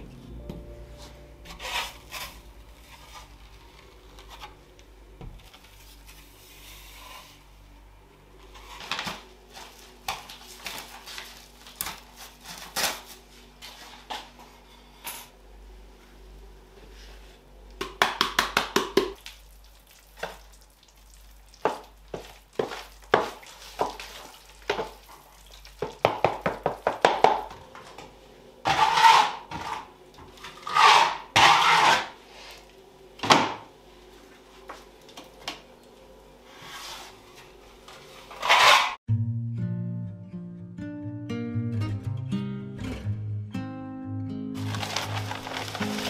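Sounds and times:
powder mixed in plastic tray: 19.2s - 27.5s, 44.6s - 46.0s
plaster scraping on wall: 30.6s - 32.2s.

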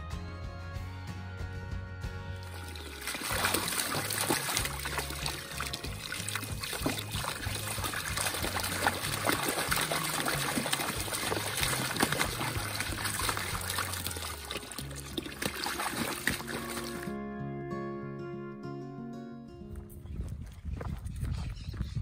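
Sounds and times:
background music: 0.0s - 20.0s
water from hose splashing into pool: 2.4s - 17.1s.

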